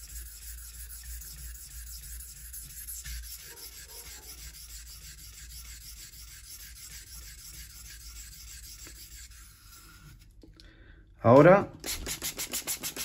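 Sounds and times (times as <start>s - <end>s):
knife blade scraping on whetstone: 0.0s - 10.3s.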